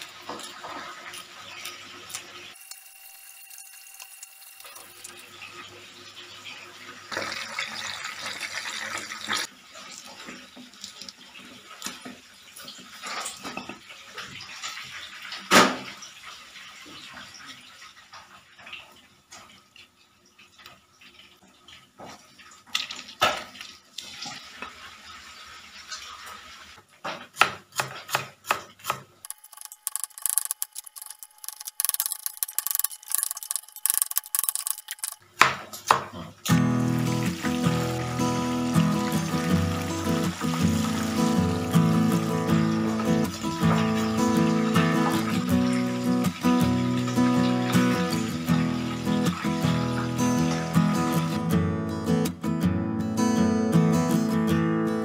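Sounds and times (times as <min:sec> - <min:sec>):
water splashing and trickling: 0:04.2 - 0:26.9, 0:36.5 - 0:51.3.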